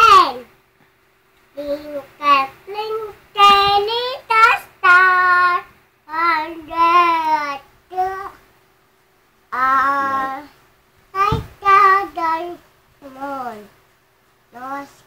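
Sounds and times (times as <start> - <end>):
boy singing: 1.6 - 8.4, 9.5 - 13.7.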